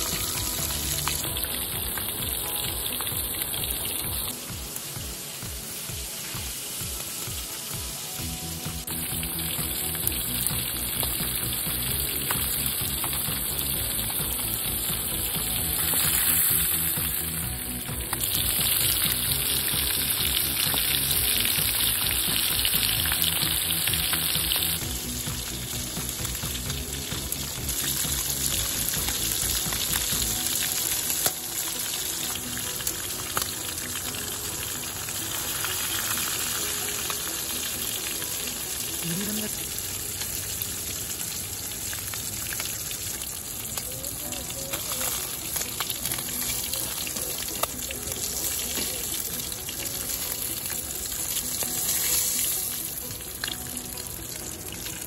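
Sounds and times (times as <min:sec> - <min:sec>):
fish frying in oil: 0:00.0 - 0:55.0.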